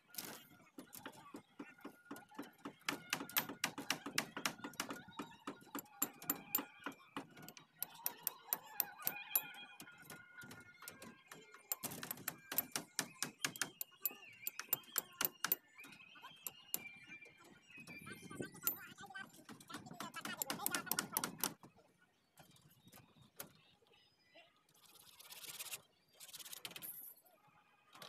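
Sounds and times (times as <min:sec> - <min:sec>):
tool clicking on steel mesh: 0:05.8 - 0:10.0, 0:11.6 - 0:15.6.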